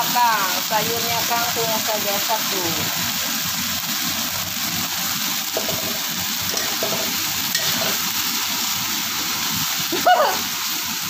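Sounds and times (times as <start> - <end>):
greens sizzling in a hot pan: 0.0 - 11.0.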